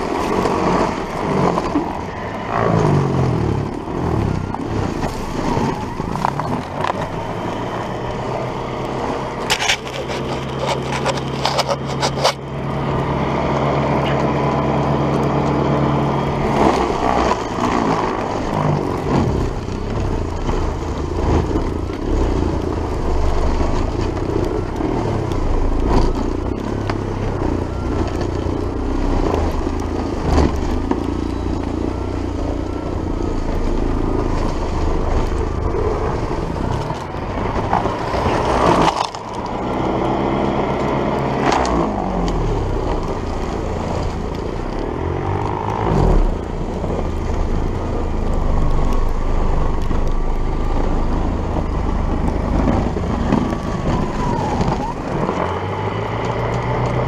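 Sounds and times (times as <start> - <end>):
auger churning through snow: 0.0 - 57.0.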